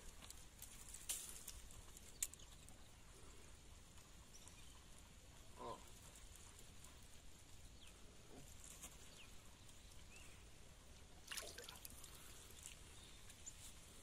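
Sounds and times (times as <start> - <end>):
faint splash of fish: 11.2 - 12.2.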